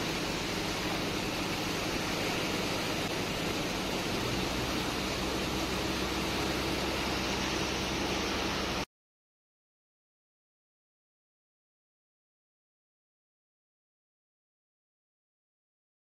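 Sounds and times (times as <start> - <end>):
pressure hose jetting water into sand: 0.0 - 8.9
pump machinery hum: 0.0 - 8.9.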